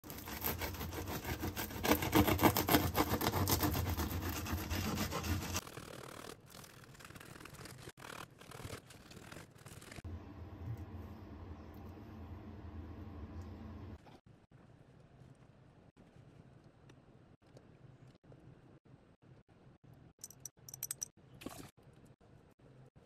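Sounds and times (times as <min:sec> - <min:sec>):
bread knife sawing through loaf: 0:00.0 - 0:06.4.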